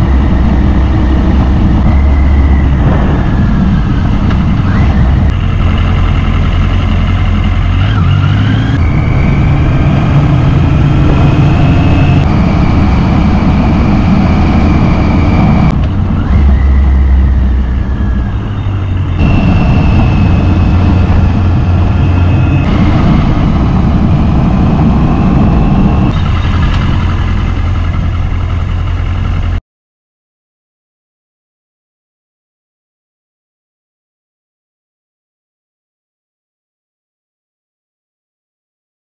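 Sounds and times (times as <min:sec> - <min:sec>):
motorcycle engine running: 0:00.0 - 0:29.6
road noise: 0:00.0 - 0:29.6
wind noise: 0:00.0 - 0:29.6.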